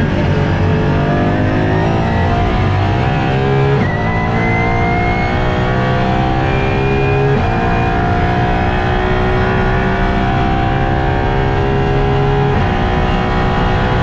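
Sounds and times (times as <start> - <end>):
car engine accelerating hard: 0.0 - 14.0.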